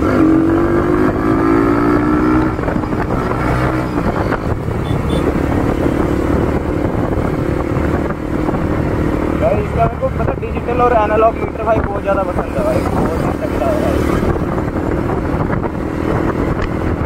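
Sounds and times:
motorcycle engine riding: 0.0 - 17.0.

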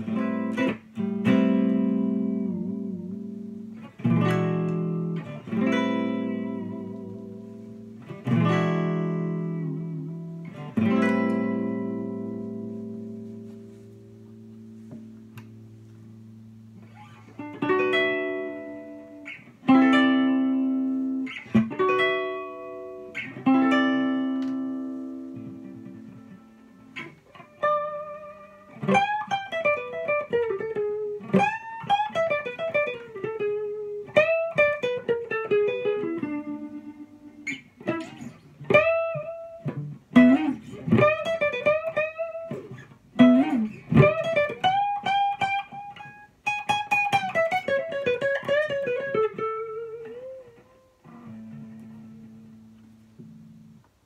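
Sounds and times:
electric guitar blues improvisation: 0.0 - 54.0.

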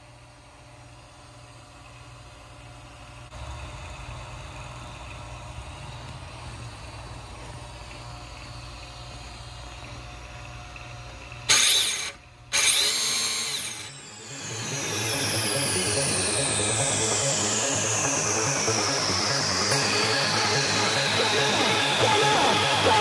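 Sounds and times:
rc car motor whine revving: 5.6 - 23.0.

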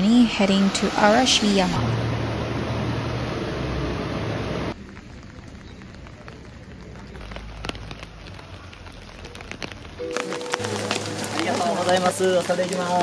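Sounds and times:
rainfall: 0.0 - 13.0
raindrops ticking close by: 4.7 - 13.0.

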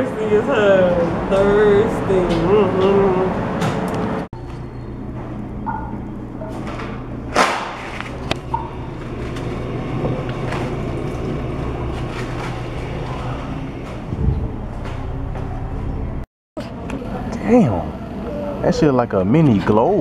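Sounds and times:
steady low hum: 0.0 - 19.3.

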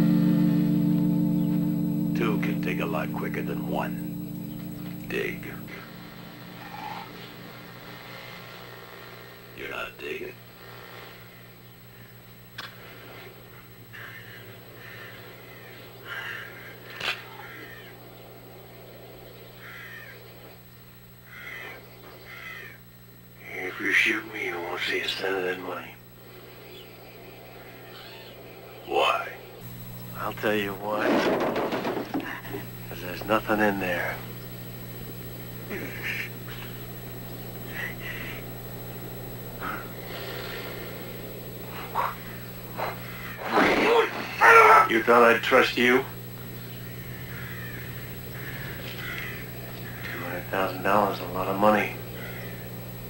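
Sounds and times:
low electrical hum: 0.0 - 53.0
faint scattered sounds: 1.4 - 53.0
harsh caw-like calls: 6.3 - 8.5, 11.0 - 23.0, 26.2 - 29.6, 35.6 - 53.0.

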